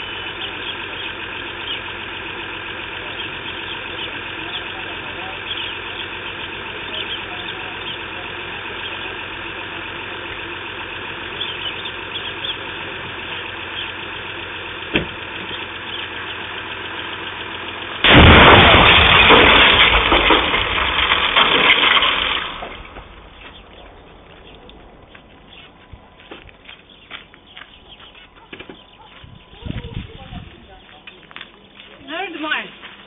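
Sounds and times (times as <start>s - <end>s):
car explosion blast: 18.0s - 23.4s.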